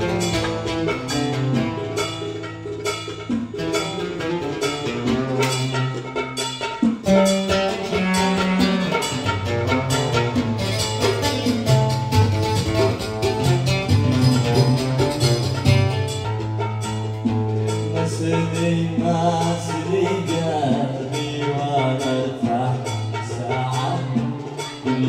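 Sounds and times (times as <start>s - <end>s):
plucked string instrument: 0.0s - 25.0s
sustained bass line: 7.2s - 25.0s.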